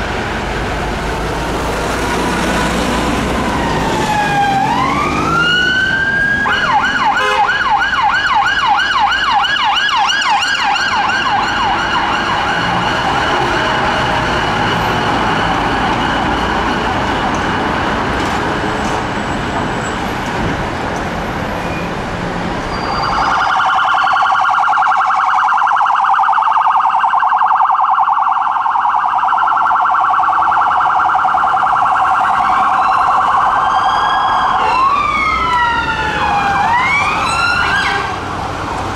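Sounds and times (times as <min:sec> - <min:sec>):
traffic noise: 0:00.0 - 0:38.9
police siren yelping and warbling: 0:03.2 - 0:17.4, 0:23.0 - 0:38.1.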